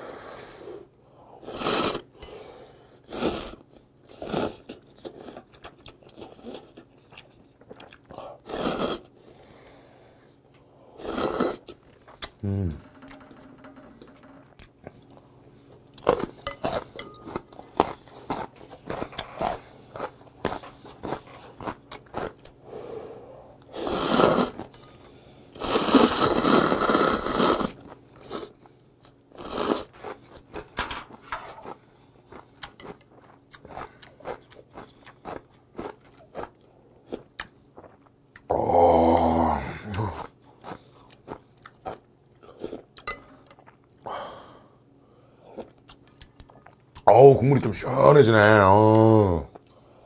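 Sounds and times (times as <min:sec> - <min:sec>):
slurping noodles: 0:01.4 - 0:02.1, 0:03.1 - 0:05.4, 0:08.4 - 0:09.1, 0:11.0 - 0:11.8, 0:23.7 - 0:24.7, 0:25.6 - 0:28.6, 0:29.4 - 0:30.0
wet chewing: 0:04.1 - 0:08.2, 0:31.6 - 0:38.5.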